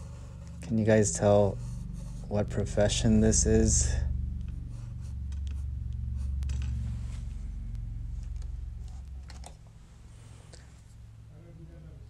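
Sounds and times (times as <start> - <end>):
pencil scratching on paper: 0.0 - 3.8, 4.4 - 7.2
low hum: 0.0 - 12.0.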